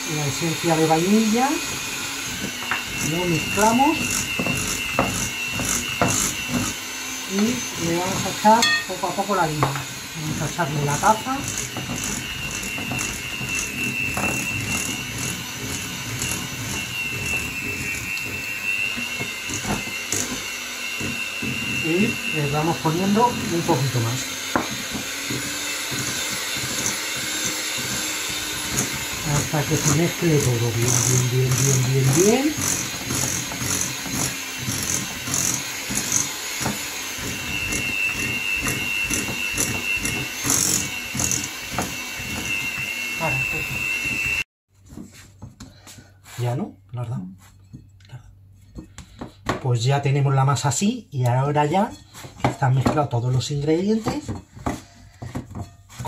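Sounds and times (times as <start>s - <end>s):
electric hand mixer whining: 0.0s - 44.5s
beaters knocking and scraping bowl: 0.0s - 45.7s, 51.8s - 56.0s.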